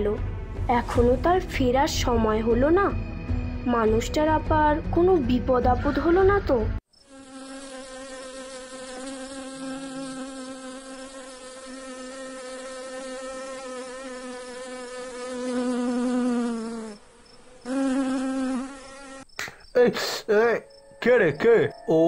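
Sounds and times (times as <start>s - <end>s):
cartoon mosquitoes buzzing: 6.9s - 20.7s.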